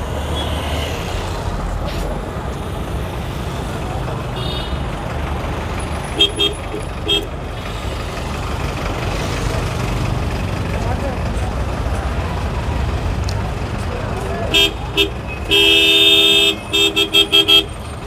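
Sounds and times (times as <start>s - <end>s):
street traffic engines: 0.0s - 18.0s
vehicle horn honking: 6.2s - 7.3s, 14.5s - 17.8s.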